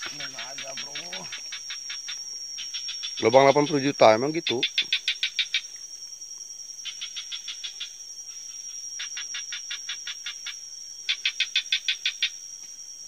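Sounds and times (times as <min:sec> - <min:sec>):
animal chirping rapidly: 0:00.0 - 0:01.6
steady high-pitched hum: 0:00.0 - 0:13.0.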